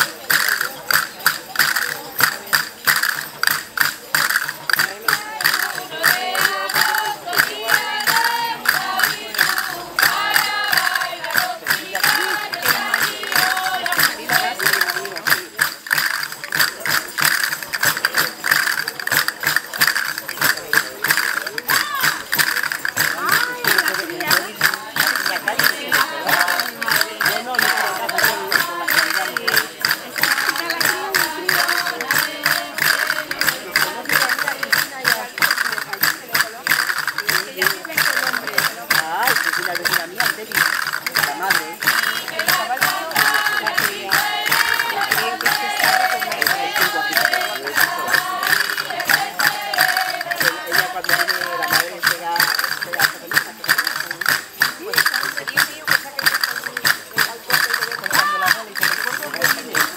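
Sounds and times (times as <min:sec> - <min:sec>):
frame drums with jingles: 0:00.0 - 0:59.9
women singing in chorus: 0:05.1 - 0:15.2, 0:23.3 - 0:34.8, 0:41.8 - 0:51.9.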